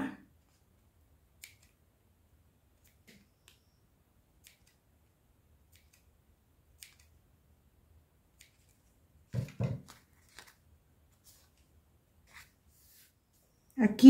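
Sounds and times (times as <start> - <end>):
small scissors snipping: 5.7 - 6.1, 6.8 - 7.1.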